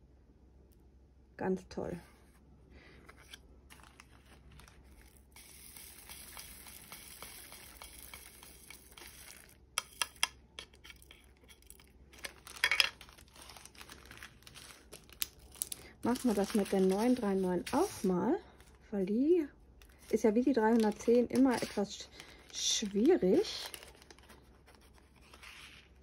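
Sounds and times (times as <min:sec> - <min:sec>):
plastic bags crinkling: 0:03.6 - 0:09.7, 0:10.7 - 0:18.9, 0:19.8 - 0:26.0.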